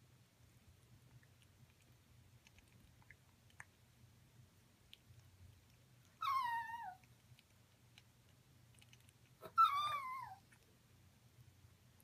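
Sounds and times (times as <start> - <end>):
dog whining: 6.2 - 7.0, 9.4 - 10.4
parrot beak ticks: 7.0 - 9.4.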